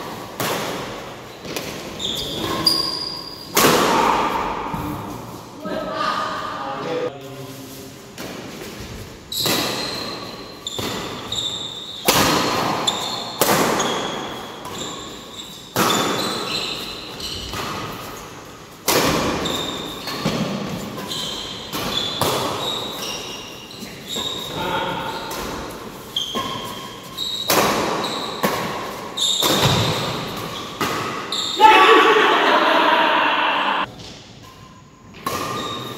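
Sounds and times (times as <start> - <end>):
shoes squeaking on court: 1.2 - 3.5, 8.5 - 18.7, 19.3 - 31.6, 33.8 - 35.9
rackets striking shuttlecock: 25.2 - 31.3.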